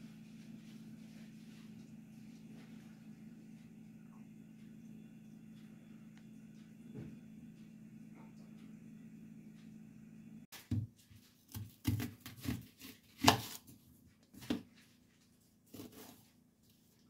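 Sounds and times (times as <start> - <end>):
knife cutting onion: 11.5 - 13.7, 15.7 - 16.3.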